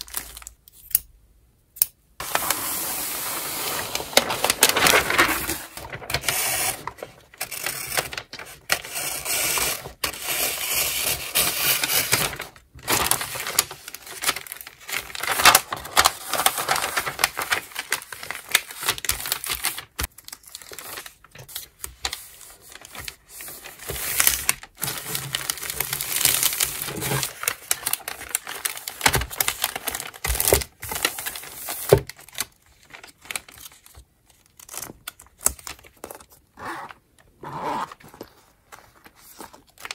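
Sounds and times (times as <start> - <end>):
wrapping paper rustling: 0.0 - 0.6, 2.2 - 36.5, 37.9 - 39.9.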